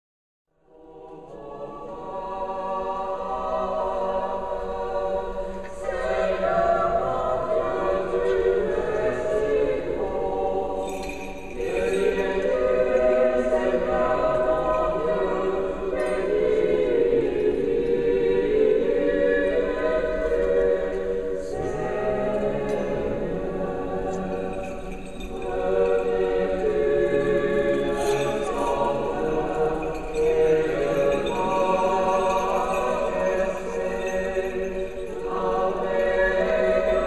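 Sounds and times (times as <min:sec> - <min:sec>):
choir chanting unaccompanied: 0:00.6 - 0:37.0.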